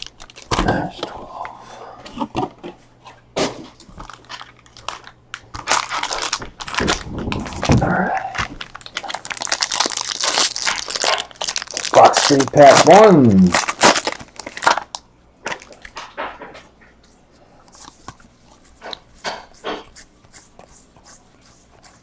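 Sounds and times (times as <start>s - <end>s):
foil wrappers crinkling: 0.0s - 1.1s, 3.6s - 16.2s.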